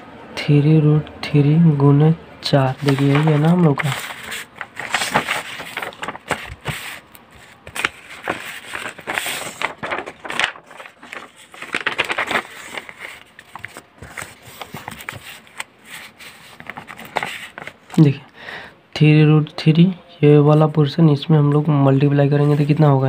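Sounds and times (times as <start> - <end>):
paper rustling and crackling: 2.6 - 18.1, 22.2 - 23.0.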